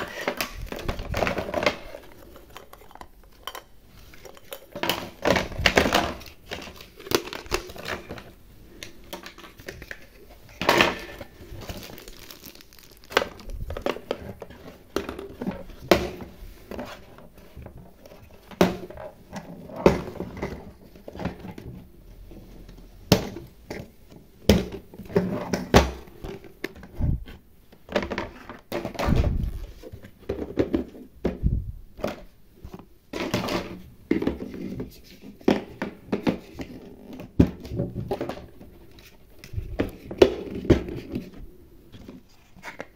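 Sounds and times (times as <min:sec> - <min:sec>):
plastic toy pieces clacking: 0:11.6 - 0:14.0.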